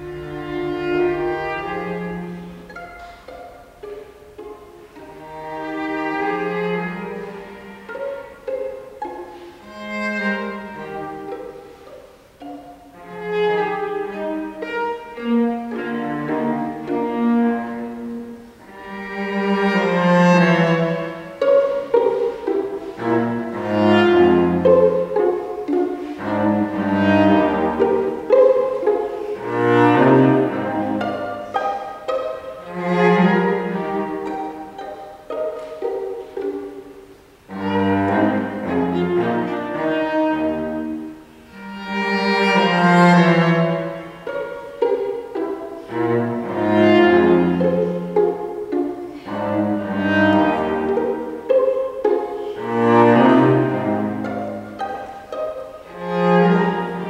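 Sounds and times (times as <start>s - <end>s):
string quartet playing chamber music: 0.0s - 57.0s.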